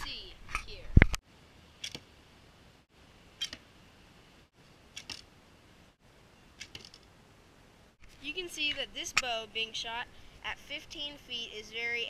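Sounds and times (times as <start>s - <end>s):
arrows striking foam target: 6.6s - 7.0s.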